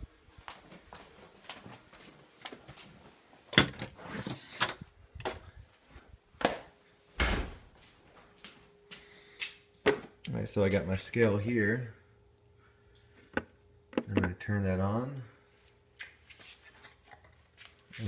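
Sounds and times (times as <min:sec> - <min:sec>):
footsteps: 0:00.2 - 0:03.5, 0:07.6 - 0:11.4
door opening and shutting: 0:07.2 - 0:07.7.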